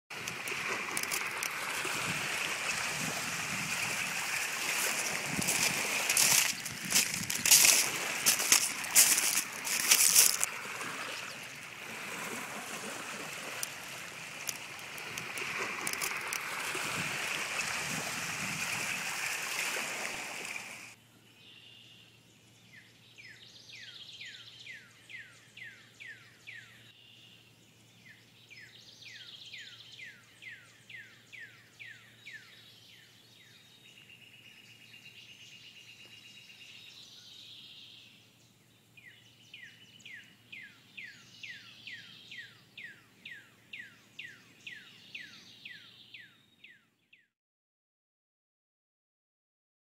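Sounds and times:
water rushing: 0.1 - 21.0
songbird singing whistled notes: 21.2 - 47.3.

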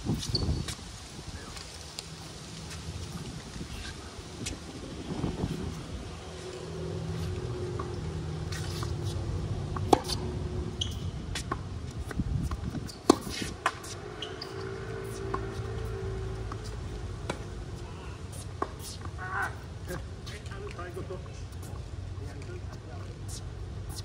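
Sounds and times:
ball and shoe clicks: 0.1 - 0.8, 6.5 - 17.6, 18.3 - 19.6, 20.2 - 24.0
passing traffic hum: 0.7 - 24.0
racket striking ball: 9.7 - 10.3, 13.0 - 14.7, 16.4 - 17.5.

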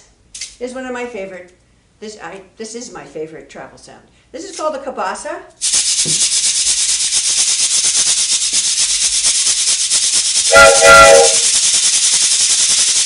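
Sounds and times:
cabasa scraped in fast rhythm: 5.6 - 13.0
multi-tone train whistle: 10.5 - 11.6.

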